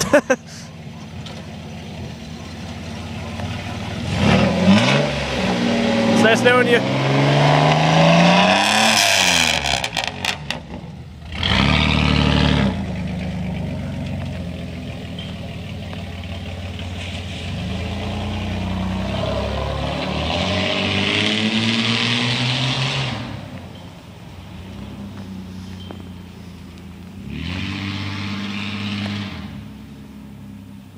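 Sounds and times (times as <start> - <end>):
exhaust cracks: 0.8 - 23.8
loud truck engine revving: 1.9 - 23.6, 27.2 - 29.8.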